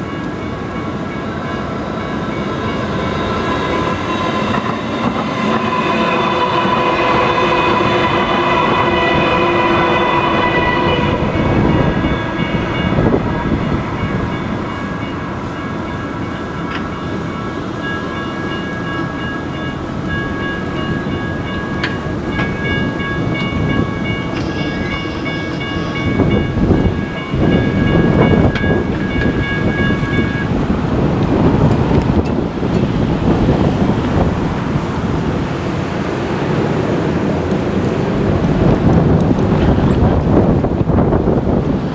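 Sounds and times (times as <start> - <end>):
crossing bell electronic dinging: 0.0 - 30.6
light rail train hum: 0.0 - 41.9.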